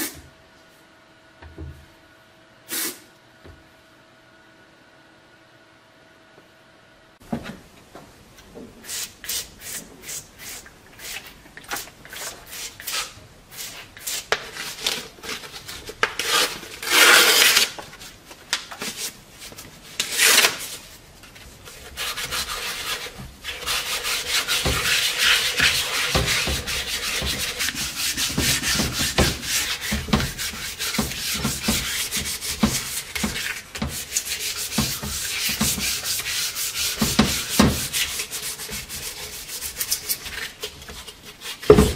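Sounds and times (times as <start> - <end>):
sandpaper rubbing on metal: 21.8 - 41.7.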